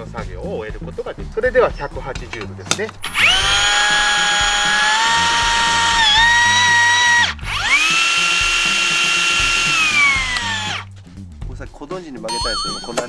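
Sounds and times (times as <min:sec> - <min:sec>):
electric motor whining: 0:03.0 - 0:10.9.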